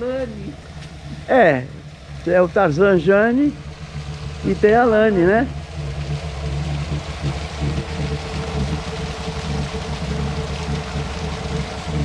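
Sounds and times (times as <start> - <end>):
low rumble and hum: 0.0 - 12.0
waterfalls splashing into pond: 0.7 - 12.0.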